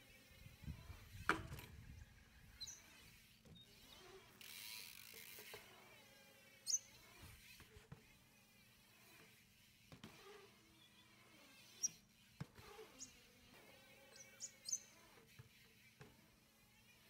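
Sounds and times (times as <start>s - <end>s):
bike tyres rolling on concrete: 0.5s - 5.8s.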